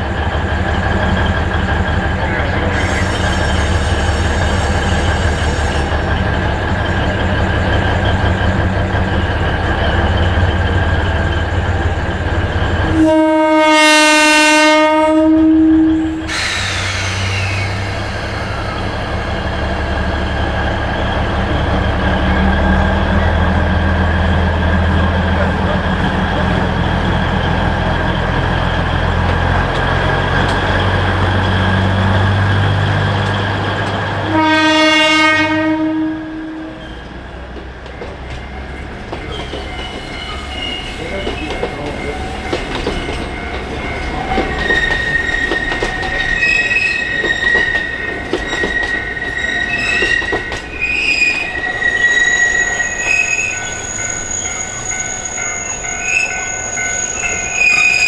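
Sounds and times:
locomotive engine rumble: 0:00.0 - 0:13.7, 0:14.9 - 0:34.8
train horn blast: 0:12.9 - 0:16.2, 0:34.3 - 0:37.0
wheels squealing on curves: 0:16.3 - 0:19.0, 0:44.6 - 0:58.0
wheels clicking over rail joints: 0:41.1 - 0:51.7.

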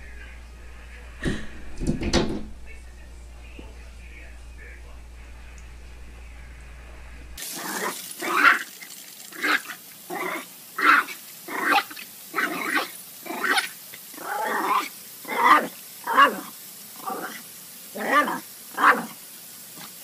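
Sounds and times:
garden sprinkler spraying: 0:07.4 - 0:20.0
small dog barking: 0:07.6 - 0:08.7, 0:09.4 - 0:17.4, 0:18.0 - 0:19.2.

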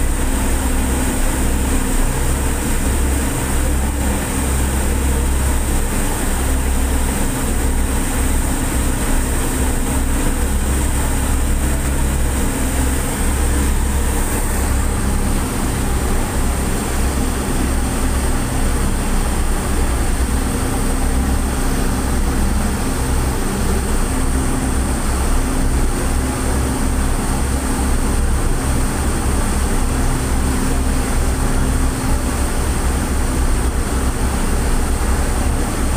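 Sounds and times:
churning wake rushing: 0:00.0 - 0:35.9
ship engines droning: 0:00.0 - 0:35.9.

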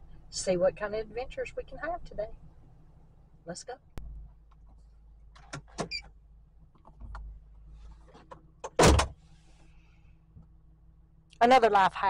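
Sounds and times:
clicks and knocks of controls: 0:06.8 - 0:07.3.

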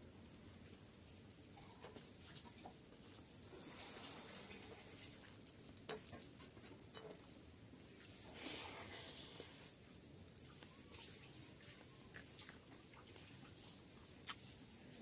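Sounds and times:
wet squishing of food: 0:00.4 - 0:15.0
brief hiss: 0:03.5 - 0:04.7.

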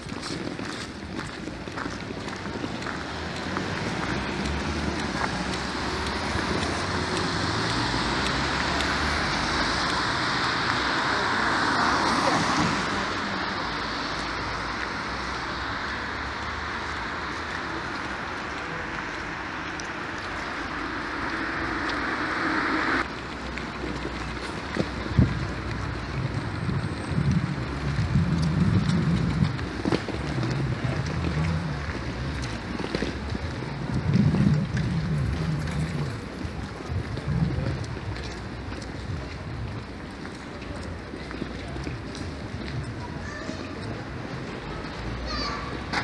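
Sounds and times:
traffic on wet road: 0:00.0 - 0:46.0
vehicle passing: 0:01.9 - 0:46.0
wind rumble on microphone: 0:17.9 - 0:43.2.

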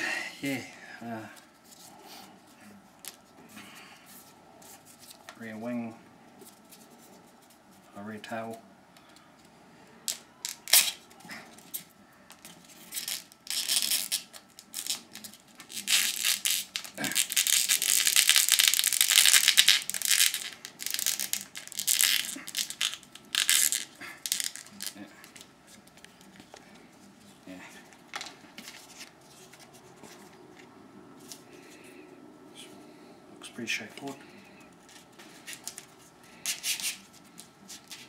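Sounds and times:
plastic packaging crinkling: 0:12.6 - 0:26.4.

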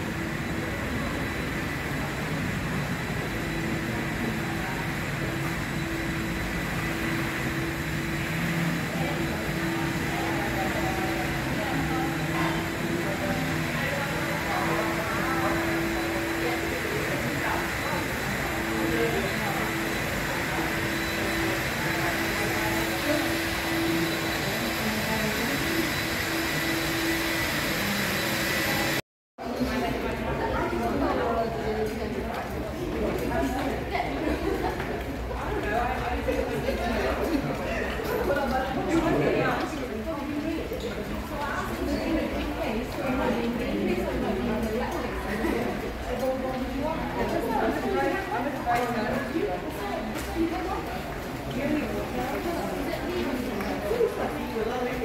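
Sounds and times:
floor-cleaning machine motor hum: 0:00.0 - 0:29.0.

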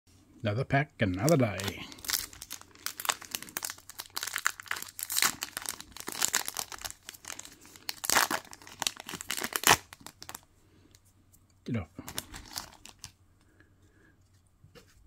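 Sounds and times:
foil wrapper crinkling and tearing: 0:01.2 - 0:10.4, 0:12.0 - 0:13.2.

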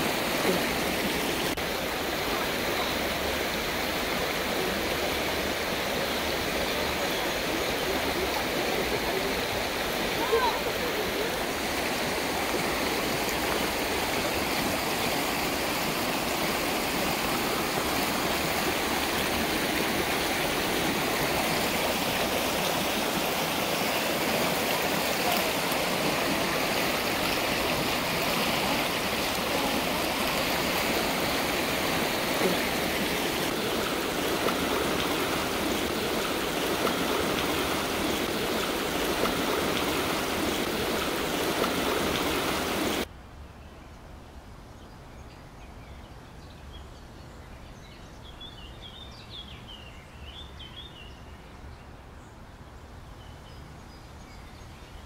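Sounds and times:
river and waterfall rushing: 0:00.0 - 0:43.1.

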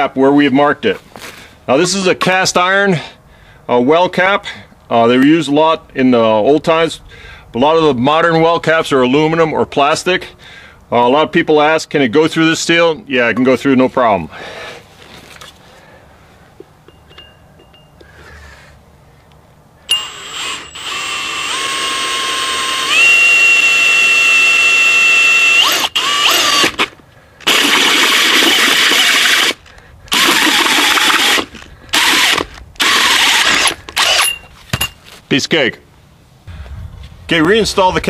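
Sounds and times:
drill hole saw cutting iron: 0:19.9 - 0:34.4.

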